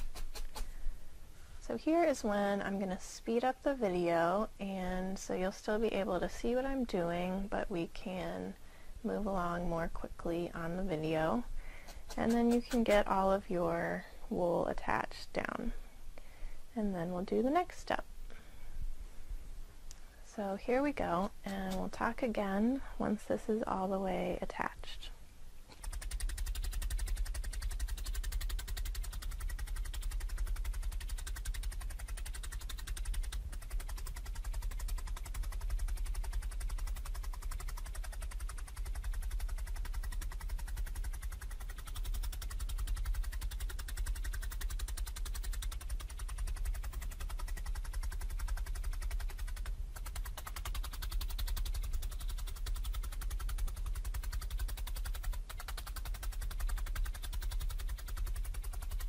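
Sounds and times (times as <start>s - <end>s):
felting needle poking into foam: 0.0s - 0.8s, 11.8s - 13.5s, 21.0s - 22.4s, 25.7s - 59.0s.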